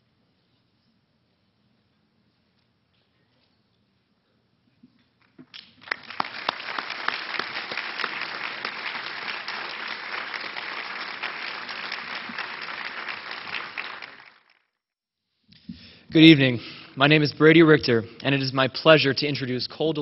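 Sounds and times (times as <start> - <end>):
audience applauding: 5.5 - 14.8.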